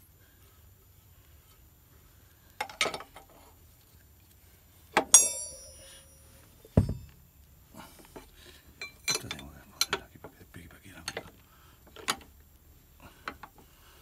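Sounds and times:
ringing metallic strike: 0:05.1 - 0:07.2
knock: 0:06.8 - 0:07.2
wrenches clanking on metal: 0:08.8 - 0:10.0.

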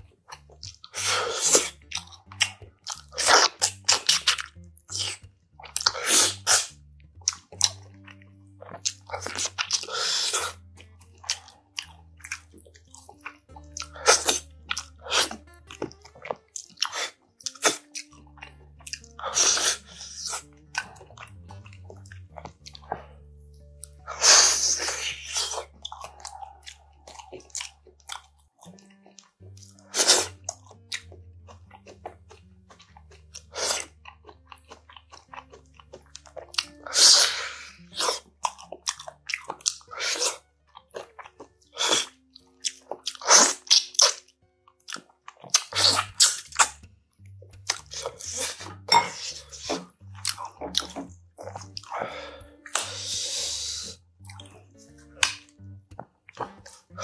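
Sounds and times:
wet chewing: 0:00.0 - 0:57.0
loud slurps: 0:00.9 - 0:01.8, 0:05.8 - 0:06.8, 0:19.2 - 0:20.4, 0:24.1 - 0:28.3, 0:29.8 - 0:30.4, 0:33.5 - 0:33.9, 0:36.8 - 0:38.2, 0:43.2 - 0:44.2, 0:45.5 - 0:46.8, 0:51.9 - 0:54.0.

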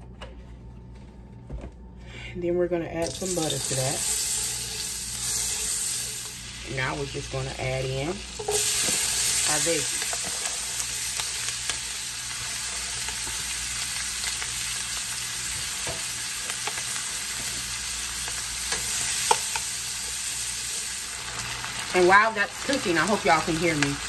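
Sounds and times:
vegetables sizzling in oil: 0:03.0 - 0:24.0.

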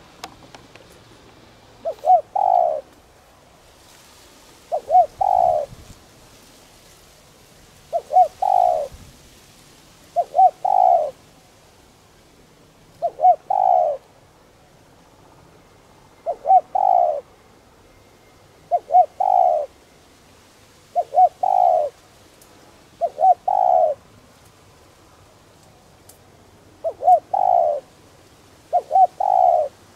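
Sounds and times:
dove cooing: 0:01.8 - 0:03.0, 0:04.7 - 0:05.9, 0:07.9 - 0:09.0, 0:10.1 - 0:11.2, 0:12.9 - 0:14.1, 0:16.2 - 0:17.3, 0:18.7 - 0:19.8, 0:20.9 - 0:22.0, 0:23.0 - 0:24.1, 0:26.8 - 0:27.9, 0:28.7 - 0:29.9.

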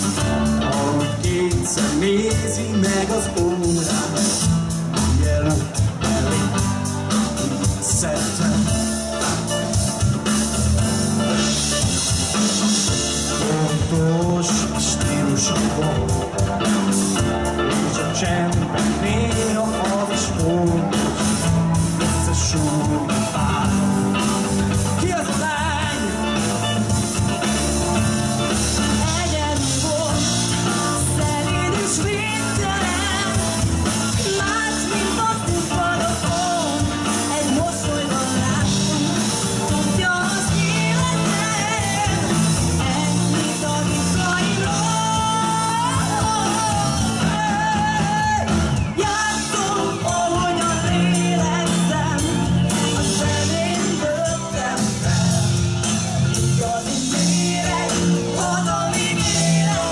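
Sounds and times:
live rock band playing: 0:00.0 - 0:59.9
woman singing: 0:28.9 - 0:56.0, 0:56.6 - 0:59.9.

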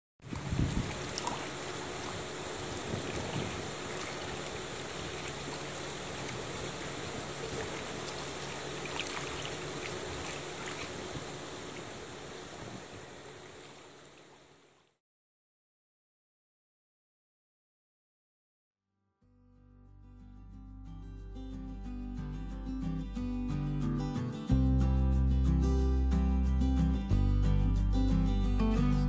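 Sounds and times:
light wind: 0:00.2 - 0:14.7
small waves lapping: 0:00.2 - 0:14.9
steady high hiss: 0:00.5 - 0:14.8.

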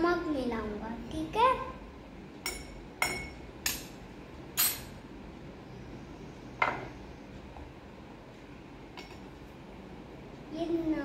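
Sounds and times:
metal spoon clinking on bowl and glass: 0:04.6 - 0:05.0.

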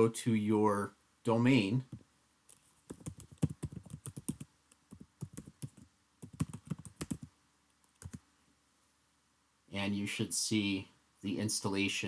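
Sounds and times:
computer keyboard typing: 0:02.9 - 0:07.3, 0:07.9 - 0:08.2.

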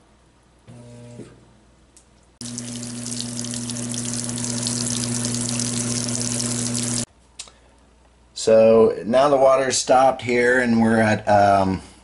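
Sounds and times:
washing machine hum: 0:02.4 - 0:07.1
water spraying into tub: 0:02.4 - 0:07.1.

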